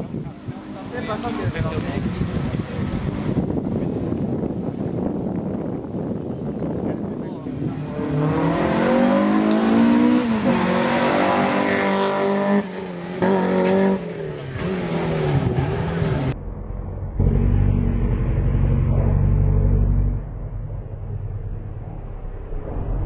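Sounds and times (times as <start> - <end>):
rally car engines revving: 7.4 - 16.4
steady low rumble: 16.3 - 23.0.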